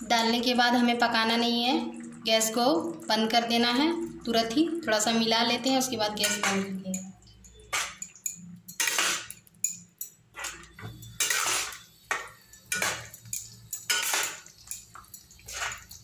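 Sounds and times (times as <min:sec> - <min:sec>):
spatula scraping a pan: 0:08.7 - 0:09.4, 0:10.4 - 0:14.8, 0:15.4 - 0:16.0.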